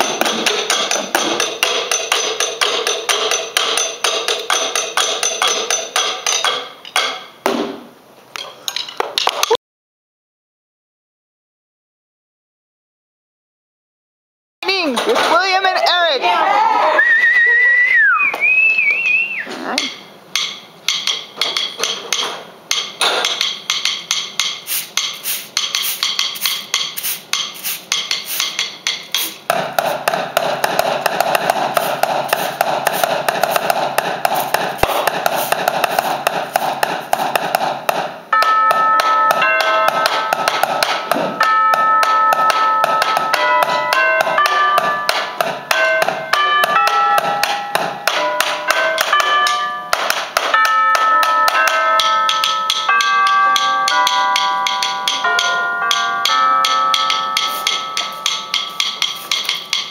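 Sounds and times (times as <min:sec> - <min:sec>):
rapid stick taps: 0:00.0 - 0:07.6, 0:19.8 - 0:59.9
steady dense noise: 0:00.0 - 0:09.2, 0:14.6 - 0:59.9
whistle-like tone: 0:17.0 - 0:19.5
tubular chimes ringing: 0:38.3 - 0:59.8.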